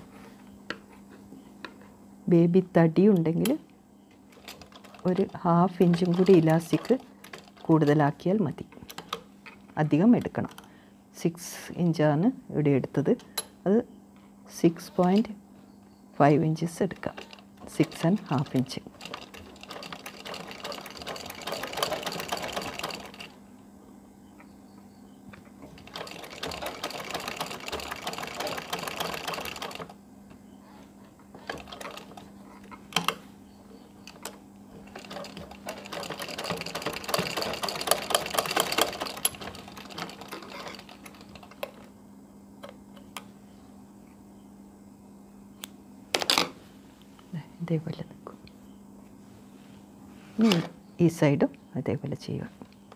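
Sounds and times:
sewing machine needle clatter: 0:04.3 - 0:08.0, 0:16.9 - 0:23.4, 0:25.8 - 0:30.0, 0:31.4 - 0:32.3, 0:34.0 - 0:41.8.

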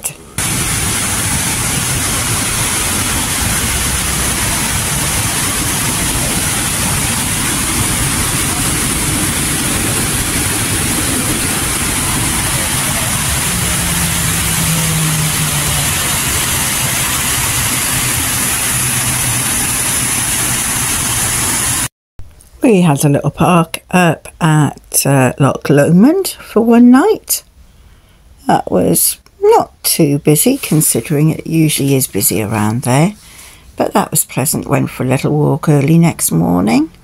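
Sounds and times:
waterfall rushing: 0:00.2 - 0:21.9.

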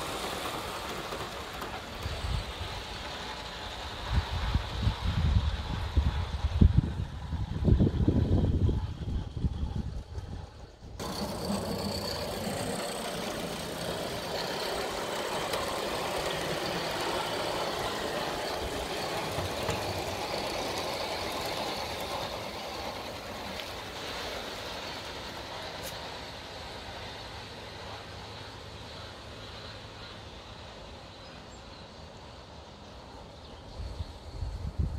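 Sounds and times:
model steam locomotive running: 0:00.0 - 0:34.9.

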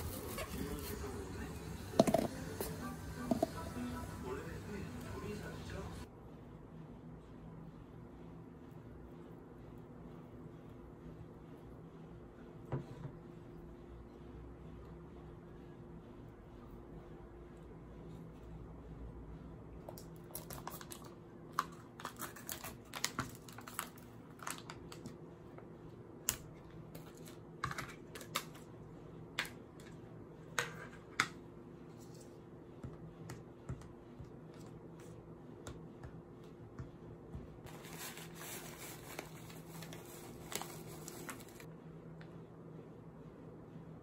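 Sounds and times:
paper pouch rustling: 0:37.7 - 0:41.7.

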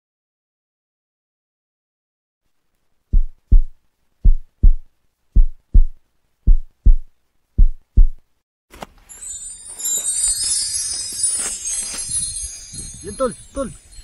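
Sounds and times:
heartbeat thumps: 0:03.1 - 0:08.2.

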